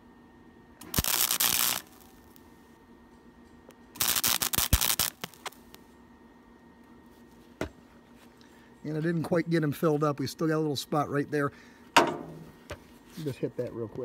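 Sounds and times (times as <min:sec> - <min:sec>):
mig welder crackling: 0:00.8 - 0:02.7, 0:03.7 - 0:05.8.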